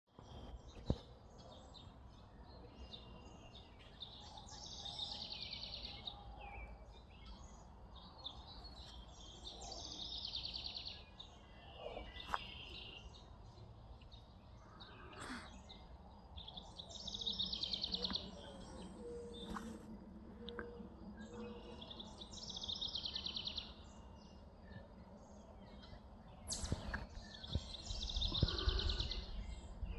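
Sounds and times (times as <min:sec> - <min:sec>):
bird chirps: 0:00.1 - 0:29.9
bird trilled song: 0:20.4 - 0:29.9.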